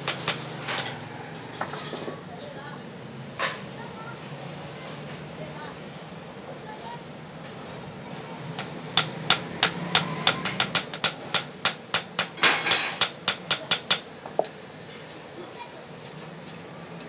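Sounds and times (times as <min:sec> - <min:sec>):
hammer striking tongs on anvil: 0:08.6 - 0:14.1.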